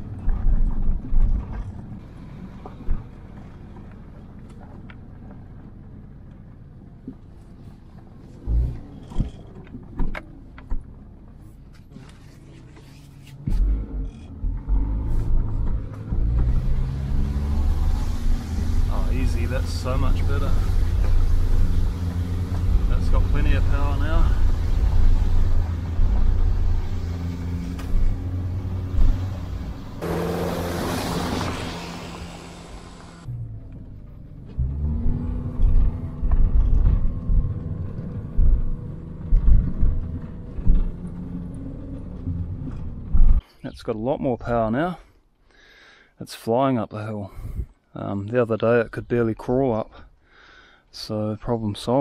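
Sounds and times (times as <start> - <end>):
car engine running: 12.2 - 43.4.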